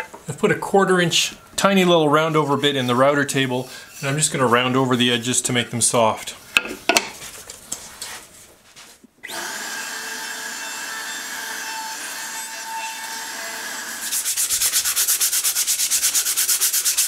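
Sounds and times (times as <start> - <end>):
hand sanding wood: 1.6 - 5.6, 14.0 - 17.0
router cutting wood: 9.2 - 14.1.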